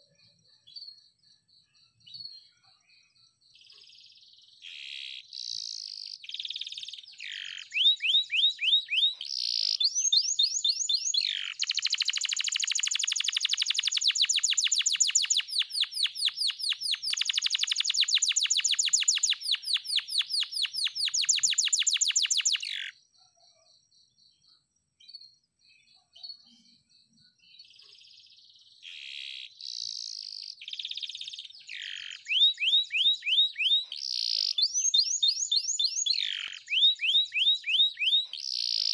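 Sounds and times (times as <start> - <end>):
canary singing: 3.6 - 23.0, 27.6 - 38.9.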